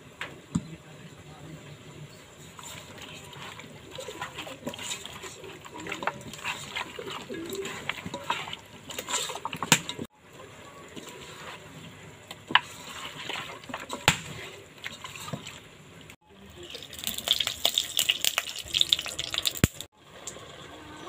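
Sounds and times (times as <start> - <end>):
wet squelching of meat: 2.4 - 10.1.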